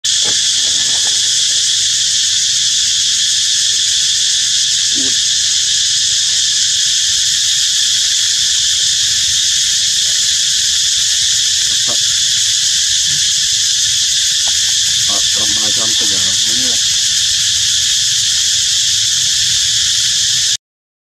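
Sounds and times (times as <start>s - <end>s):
insects buzzing: 0.0s - 20.6s.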